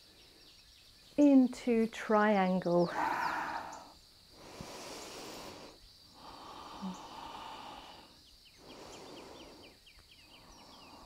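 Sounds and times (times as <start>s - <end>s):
small bird chirping: 0.0s - 4.1s, 4.7s - 11.0s
person breathing slowly: 2.9s - 11.0s.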